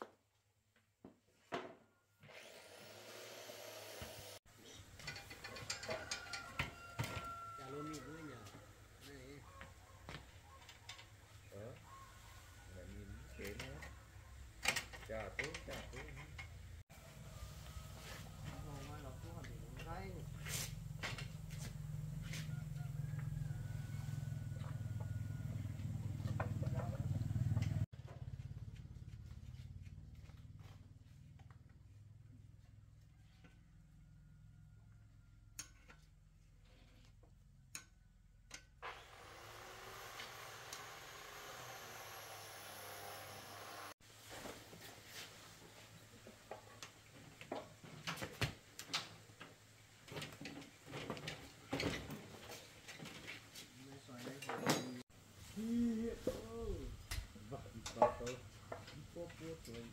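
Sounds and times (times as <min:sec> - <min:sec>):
small engine running: 0:02.4 - 0:04.4, 0:38.8 - 0:44.0.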